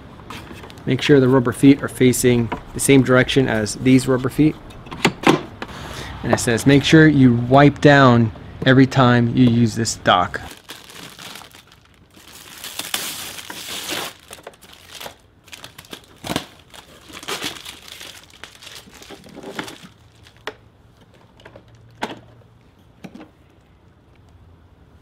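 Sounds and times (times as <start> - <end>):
plastic film crinkling and tearing: 10.5 - 20.5.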